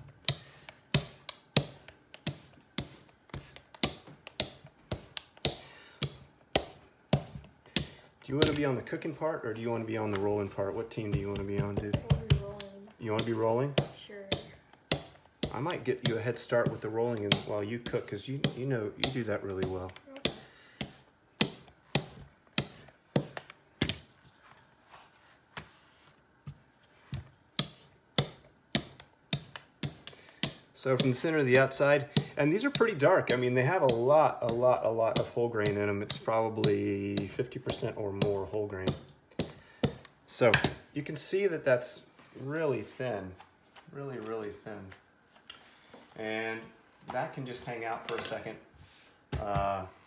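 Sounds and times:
rolling pin knocking on countertop: 0:00.2 - 0:08.7, 0:10.9 - 0:24.1, 0:26.4 - 0:40.8.

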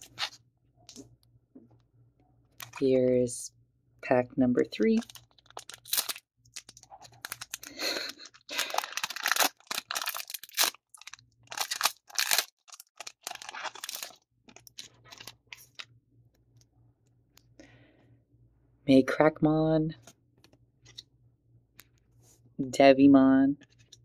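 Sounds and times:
foil wrapper crinkling and tearing: 0:00.0 - 0:00.4, 0:04.8 - 0:15.8
handling cards: 0:00.0 - 0:01.2, 0:02.6 - 0:02.9, 0:04.8 - 0:16.6.

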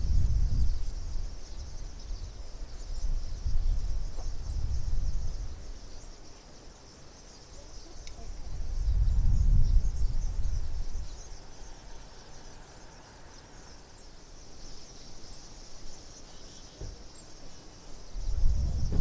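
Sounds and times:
wind buffeting microphone: 0:00.0 - 0:05.8, 0:08.1 - 0:11.9, 0:18.1 - 0:19.0.

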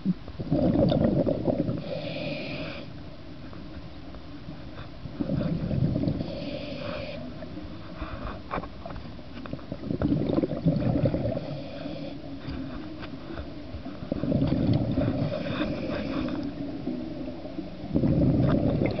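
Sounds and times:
exhaled bubbles gurgling: 0:00.0 - 0:02.9, 0:05.0 - 0:07.6, 0:09.4 - 0:12.8, 0:13.5 - 0:19.0
regulator hissing on inhale: 0:01.7 - 0:03.0, 0:05.2 - 0:08.5, 0:11.2 - 0:12.6, 0:15.0 - 0:16.6.

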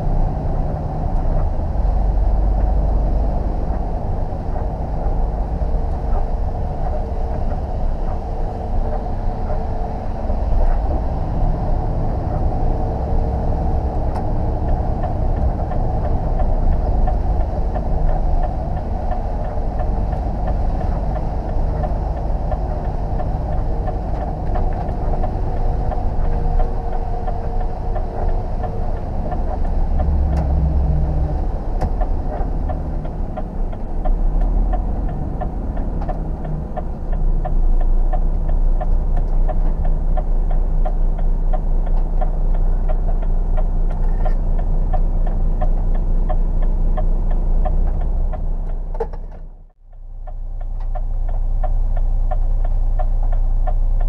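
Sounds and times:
tyres on wet road: 0:00.0 - 0:49.4
lorry diesel engine drone: 0:00.0 - 0:54.0.

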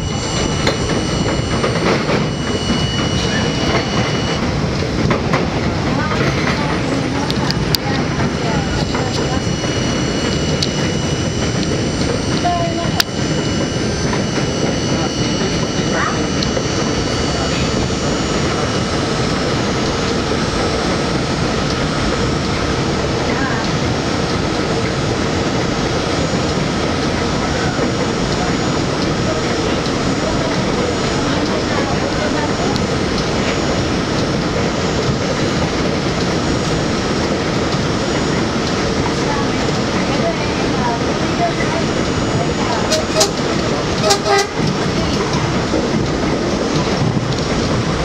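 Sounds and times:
faint high tones: 0:00.0 - 0:04.4, 0:07.0 - 0:21.7
train wheels rumbling on rail: 0:00.0 - 0:48.0.

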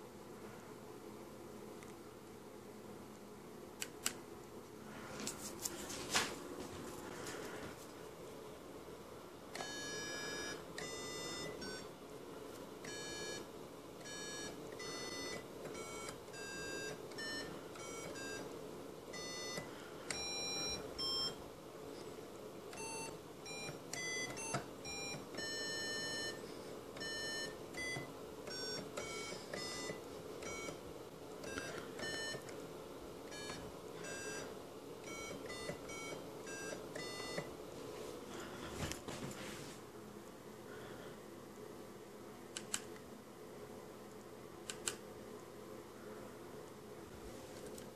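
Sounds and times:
steady hum: 0:00.0 - 0:47.9.

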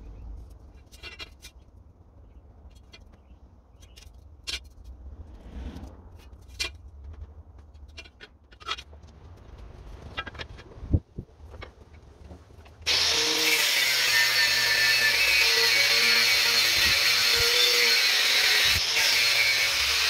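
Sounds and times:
angle grinder cutting steel: 0:12.9 - 0:20.0.

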